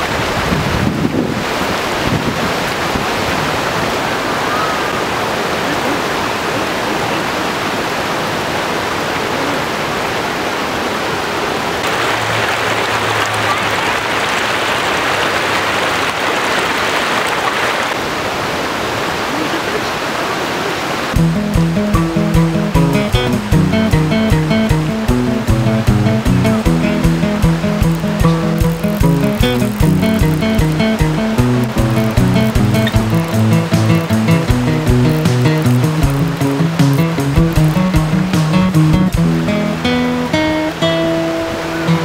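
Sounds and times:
water rushing over stones: 0.0 - 42.0
music: 21.2 - 42.0.

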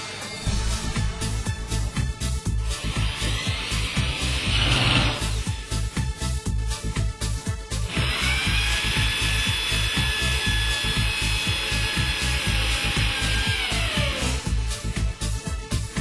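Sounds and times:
background music with steady beat: 0.0 - 16.0
electric drill whining: 2.7 - 5.6, 7.9 - 14.8.

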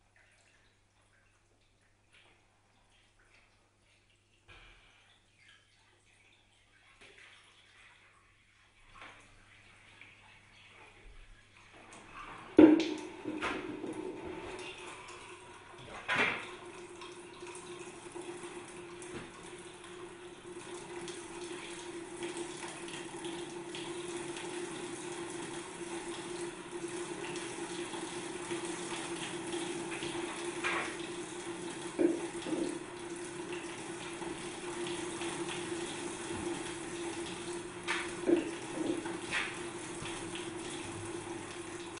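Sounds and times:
water splashing onto water wheel: 20.9 - 42.0.

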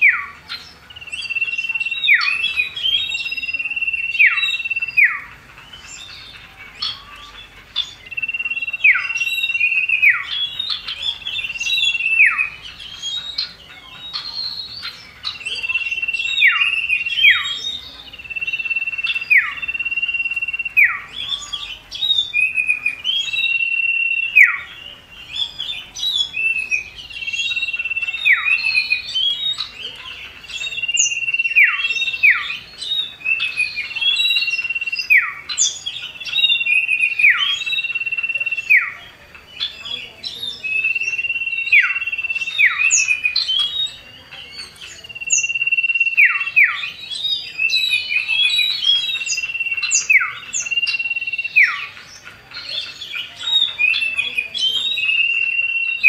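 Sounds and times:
bird long high whistle: 45.2 - 46.6.

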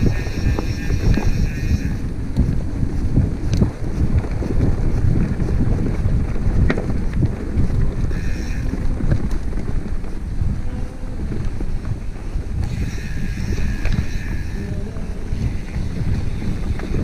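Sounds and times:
high buzz: 0.0 - 2.1, 12.6 - 15.9
mountain bike rattling: 0.0 - 17.0
wind buffeting microphone: 0.0 - 17.0.

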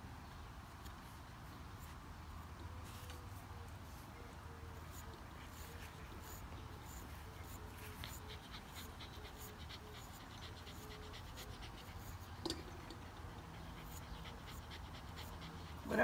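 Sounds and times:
dog panting: 4.8 - 16.0.

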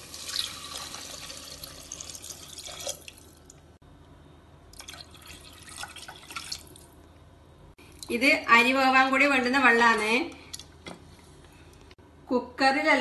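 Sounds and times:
water pouring and splashing: 0.0 - 3.4.

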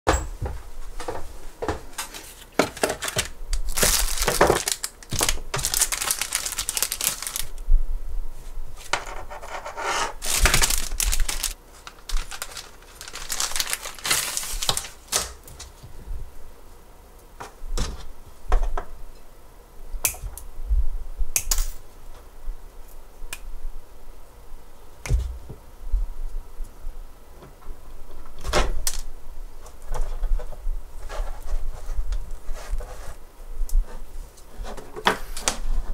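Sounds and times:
paper and plastic rustling: 1.0 - 7.6, 10.2 - 15.8.

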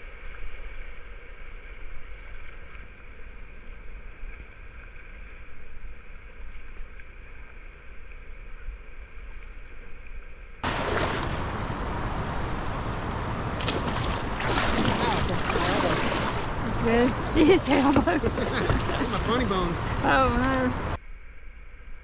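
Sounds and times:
river current rushing around hull: 10.6 - 21.0
wind rumbling on microphone: 10.6 - 21.0.

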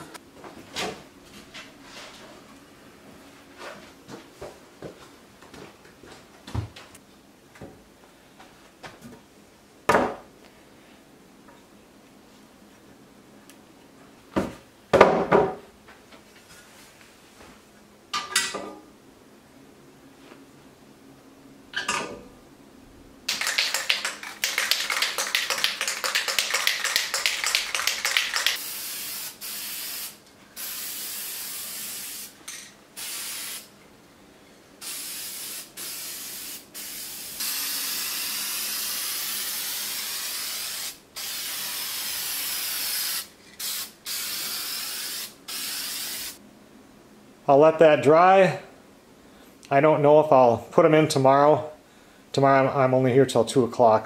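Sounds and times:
spray can ball rattling: 23.3 - 32.3
spray can spraying: 23.3 - 32.4, 33.0 - 33.7, 34.8 - 46.4.

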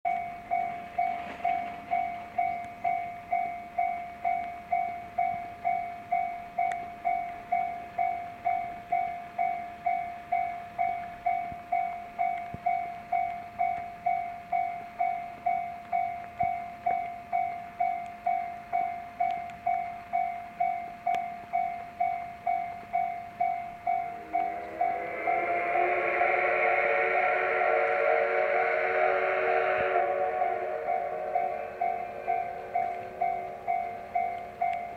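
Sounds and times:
level crossing bell ringing: 21.6 - 25.7, 30.3 - 34.9.

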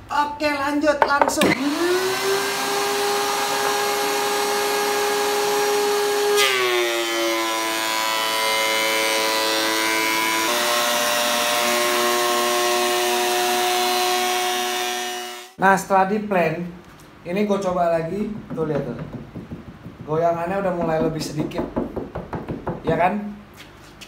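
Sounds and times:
thickness planer whining: 1.4 - 15.6.

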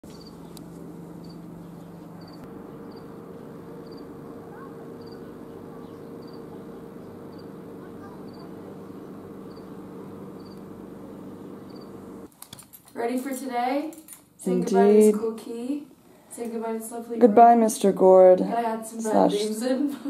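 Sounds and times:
steady low hum: 0.0 - 12.3
cricket chirping: 0.1 - 0.5, 1.2 - 8.6, 9.4 - 9.8, 10.4 - 10.7, 11.6 - 12.0.

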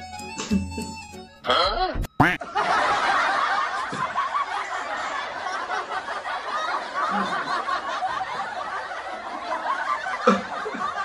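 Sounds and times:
people laughing: 2.2 - 11.0.

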